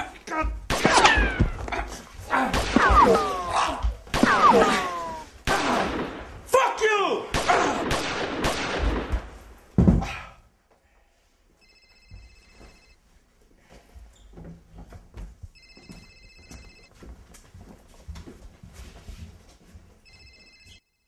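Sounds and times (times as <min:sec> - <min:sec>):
telephone ringing: 0:11.6 - 0:13.0, 0:15.6 - 0:16.9, 0:20.0 - 0:21.0.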